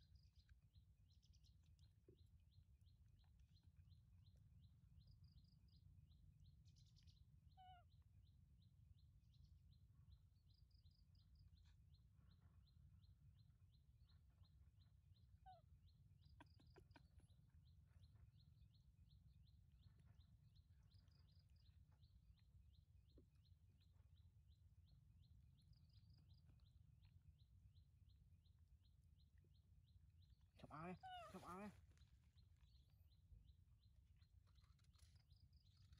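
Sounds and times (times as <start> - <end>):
brief bird calls: 7.5 - 8.0, 30.6 - 31.9.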